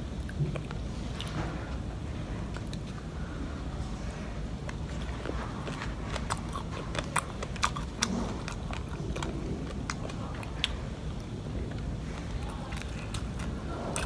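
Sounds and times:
low background hum: 0:00.0 - 0:14.0
person chewing and crunching: 0:04.6 - 0:14.0.

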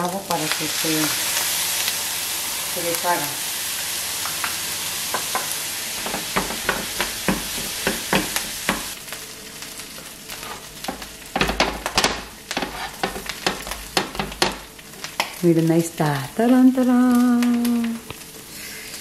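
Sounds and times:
food sizzling in a frying pan: 0:00.0 - 0:19.0
wooden utensil knocking on pan: 0:05.1 - 0:08.9, 0:10.9 - 0:14.6.

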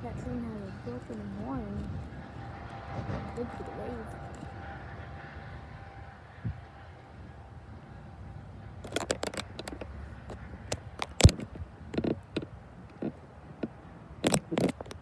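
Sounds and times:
scrapes close to microphone: 0:08.8 - 0:15.0
sharp clicks and taps: 0:10.7 - 0:15.0.

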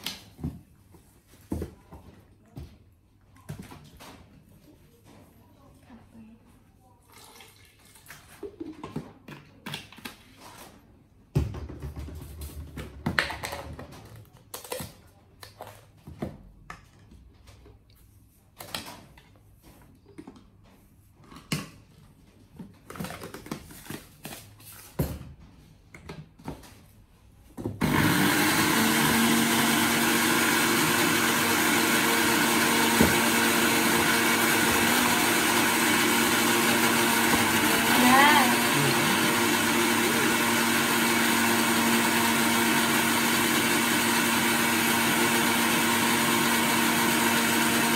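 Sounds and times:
electric blender running: 0:27.8 - 0:47.9.

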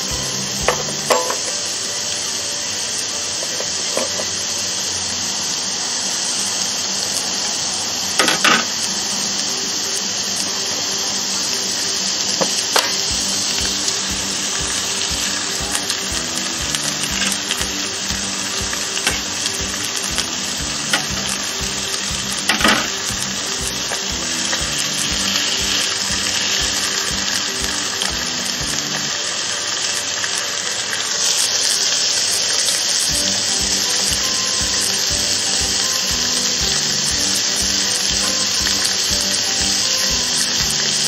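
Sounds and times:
steak sizzling on a grill: 0:00.0 - 0:41.0
tongs and grill plates clacking: 0:00.6 - 0:01.6.

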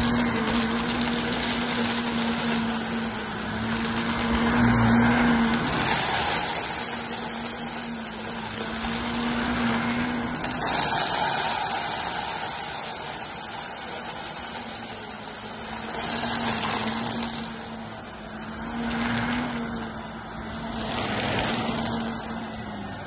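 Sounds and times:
vacuum cleaner running on carpet: 0:00.0 - 0:23.0
vacuum sucking up debris crunch: 0:00.0 - 0:23.0.

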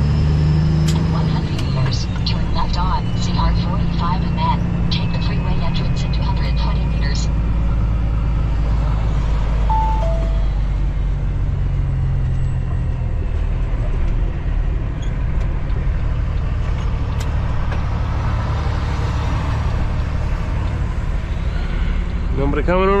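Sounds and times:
truck diesel engine rumble: 0:00.0 - 0:23.0
gps two-note chime: 0:09.7 - 0:10.8.

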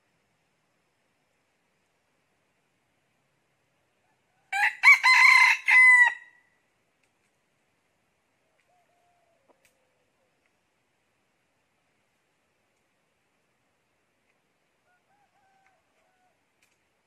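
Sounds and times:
rooster crowing: 0:04.2 - 0:06.4, 0:08.7 - 0:09.6, 0:14.8 - 0:16.4.

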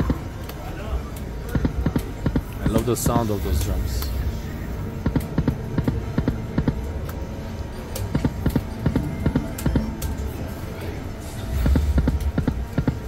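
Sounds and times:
drum-like taps: 0:01.5 - 0:02.8, 0:05.0 - 0:06.8, 0:08.0 - 0:10.1, 0:11.6 - 0:13.0.

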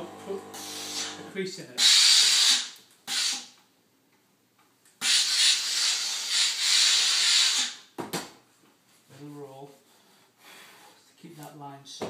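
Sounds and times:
steam iron hissing: 0:00.2 - 0:03.4.

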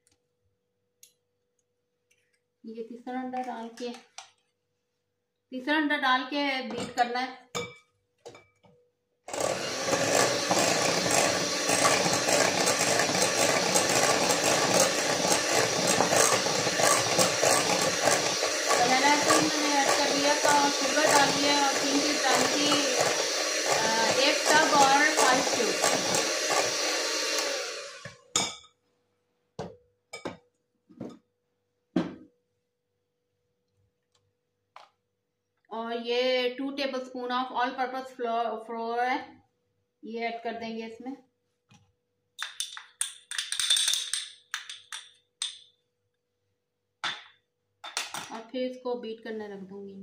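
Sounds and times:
electric mixer running: 0:09.3 - 0:28.2.

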